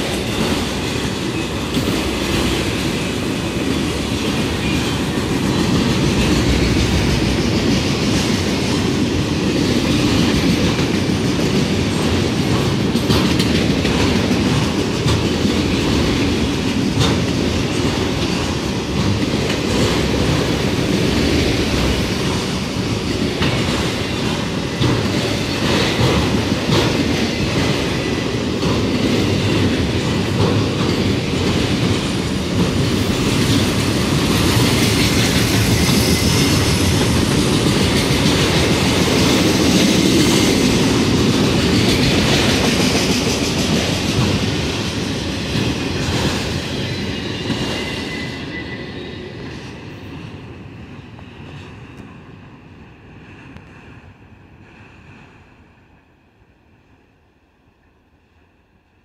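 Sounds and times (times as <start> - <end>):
train wheels rumbling on rails: 0.0 - 56.2.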